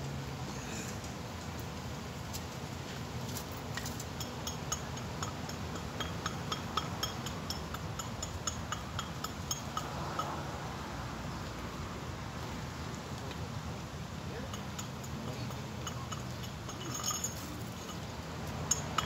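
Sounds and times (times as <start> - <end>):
light clinks: 14.4 - 19.0.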